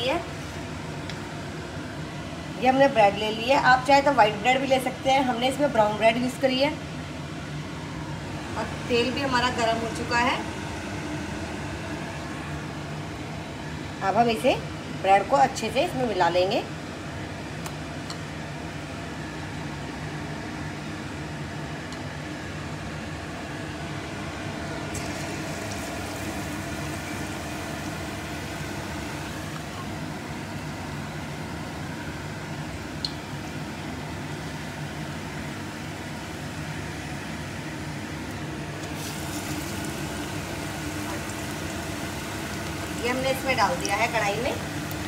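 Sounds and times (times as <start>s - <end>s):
steady mechanical hum: 0.0s - 45.0s
hot oil sizzling: 24.9s - 31.5s, 35.8s - 45.0s.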